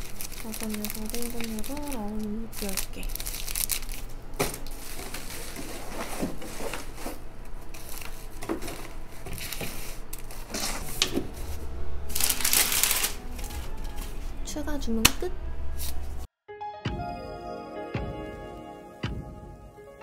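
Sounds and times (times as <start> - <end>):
packing tape pulled from dispenser: 12.1 - 14.2.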